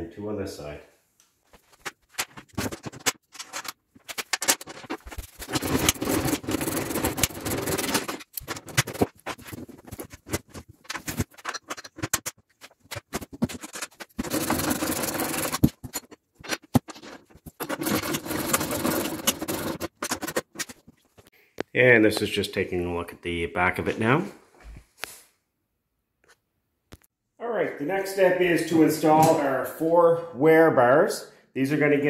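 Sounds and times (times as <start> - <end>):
metal scraping and clicking: 2.2 - 21.2.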